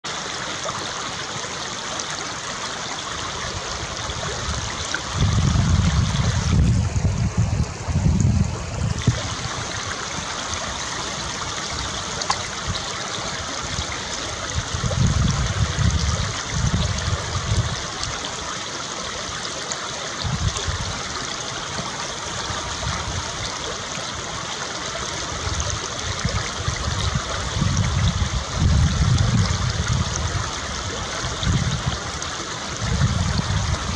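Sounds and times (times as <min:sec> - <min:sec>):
running water rushing: 0:00.0 - 0:33.9
wind buffeting microphone: 0:03.6 - 0:18.2, 0:20.2 - 0:21.1, 0:25.3 - 0:33.9.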